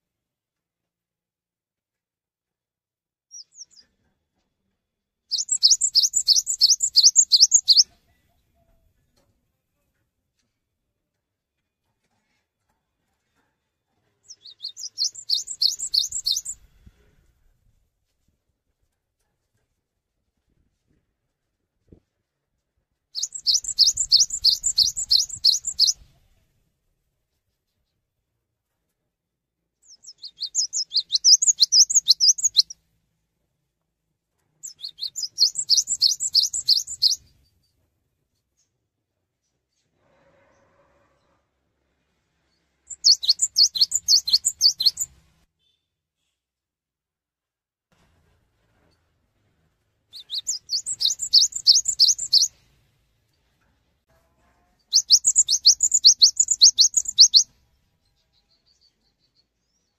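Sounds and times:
bird singing whistled notes: 3.3s - 3.8s, 5.3s - 7.9s, 14.3s - 16.6s, 23.2s - 26.0s, 29.9s - 32.8s, 34.6s - 37.3s, 42.9s - 45.1s, 50.2s - 52.5s, 54.9s - 57.5s.

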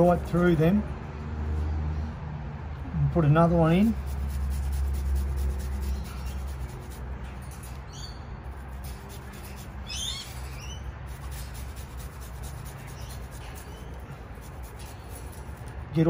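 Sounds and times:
bird chirping: 5.5s - 15.5s
garlic grated on metal grater: 8.6s - 15.8s.

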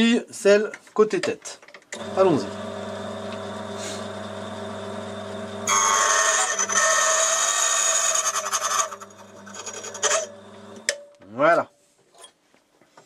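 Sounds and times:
cutter grinding key blank: 1.9s - 11.0s
key-cutting machine motor humming: 2.0s - 6.8s.

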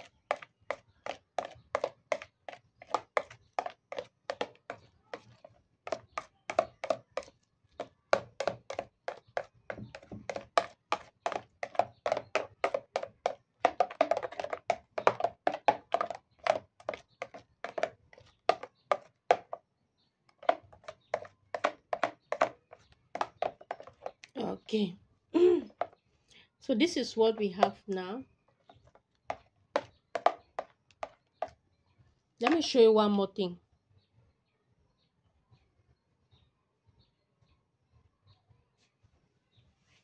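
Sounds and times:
metal spoon clacking on plastic bowl: 0.0s - 19.6s, 20.3s - 24.3s, 25.7s - 26.0s, 27.0s - 28.0s, 28.6s - 31.6s.

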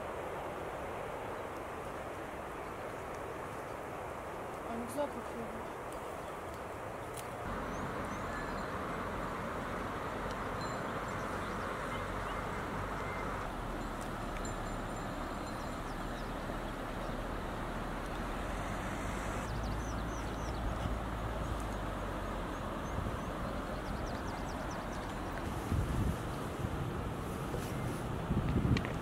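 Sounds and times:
steady rushing ambience: 7.5s - 22.7s
faint high bird chirps: 7.7s - 8.7s.

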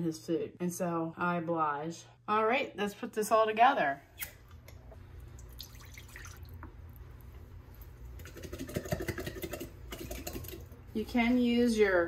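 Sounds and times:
liquid dripping from jar: 5.2s - 7.0s.

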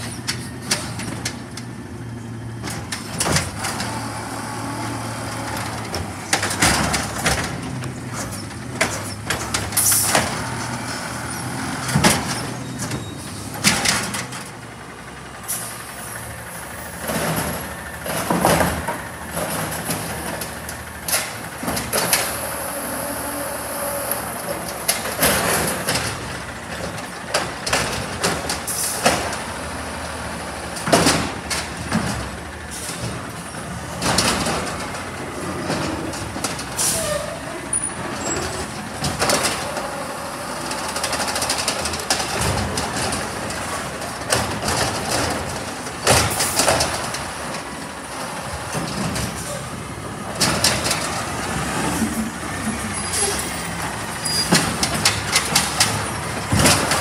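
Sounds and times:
garbage truck engine running: 0.0s - 57.0s
air brakes hissing: 15.4s - 16.8s, 28.7s - 29.0s, 36.8s - 37.4s
plastic carts banging: 50.3s - 57.0s.

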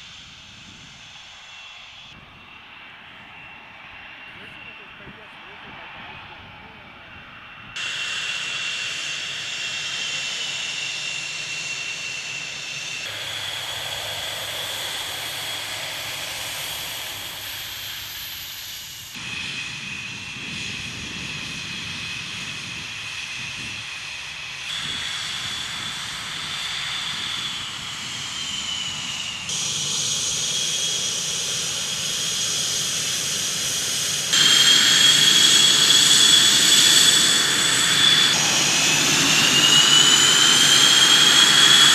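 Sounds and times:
jet engines whining: 0.0s - 41.9s
hissing rush: 7.8s - 19.7s, 24.6s - 41.9s.

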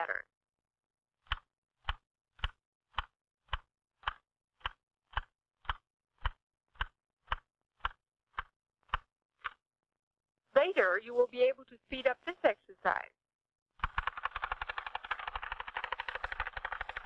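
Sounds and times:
typewriter keys clacking: 13.8s - 17.0s.

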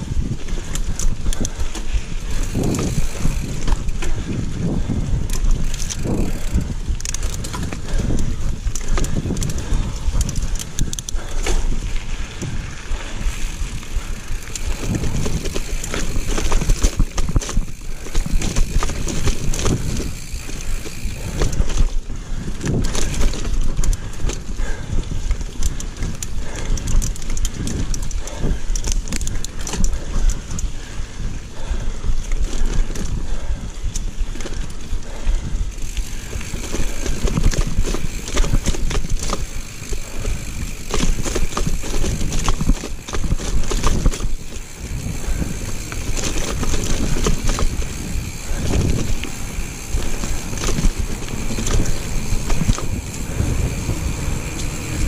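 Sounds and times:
tyres rumbling on dirt: 0.0s - 21.8s, 35.7s - 55.0s
bike chain and frame rattling: 0.0s - 55.0s
wind buffeting microphone: 0.0s - 55.0s.

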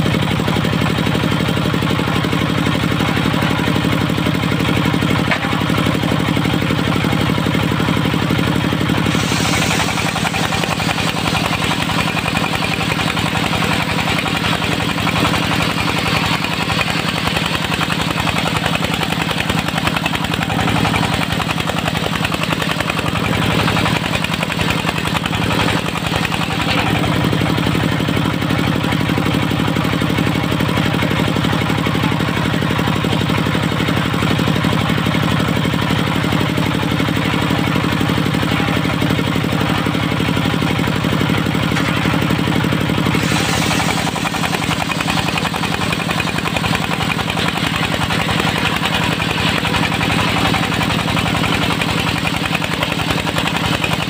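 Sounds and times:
diesel engine running: 0.0s - 54.0s
saw blade ripping through log: 43.0s - 51.0s.

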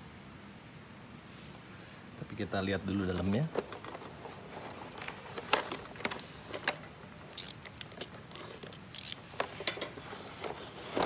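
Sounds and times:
cardboard sliding rustles: 3.1s - 6.9s, 9.3s - 11.0s.

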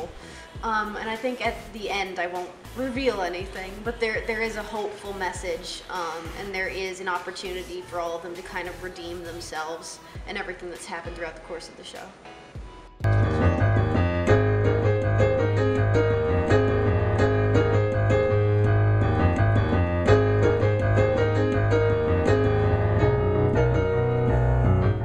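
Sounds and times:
piano music: 12.3s - 25.0s
low bass notes: 13.0s - 25.0s.

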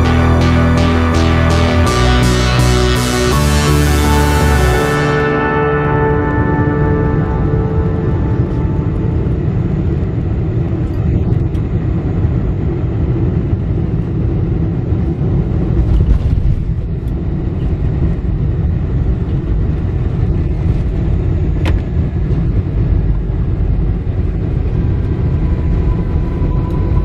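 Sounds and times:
jet cabin rumble: 5.2s - 27.0s.

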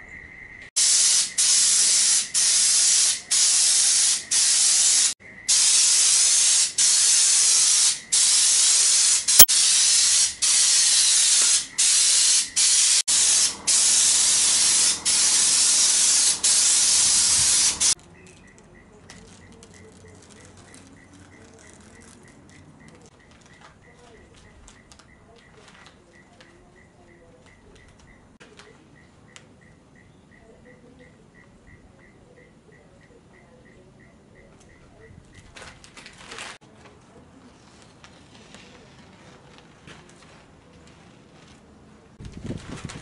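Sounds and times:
crickets chirping: 0.0s - 2.4s, 5.2s - 6.7s
spray gun hissing: 0.8s - 18.0s.

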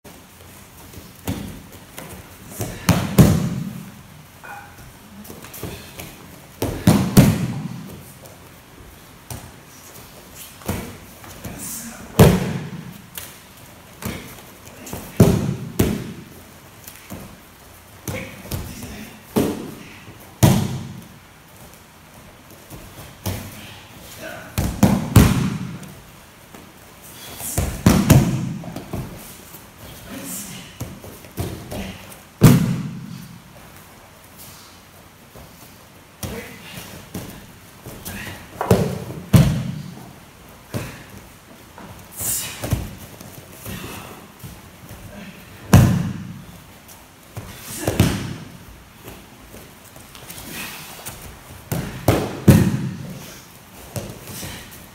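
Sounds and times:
bodies thudding on mats: 0.8s - 4.0s, 5.2s - 8.4s, 10.4s - 13.0s, 13.9s - 16.4s, 36.2s - 40.0s, 47.2s - 54.7s.

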